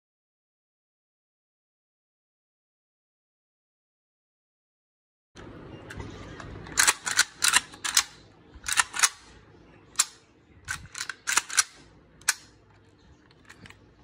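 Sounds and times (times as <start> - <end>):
rifle parts clicking and clacking: 6.4 - 9.3, 10.0 - 13.8.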